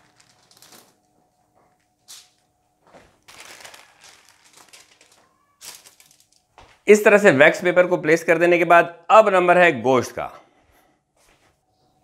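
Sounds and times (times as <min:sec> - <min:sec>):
wax paper rustling: 0:00.0 - 0:06.8.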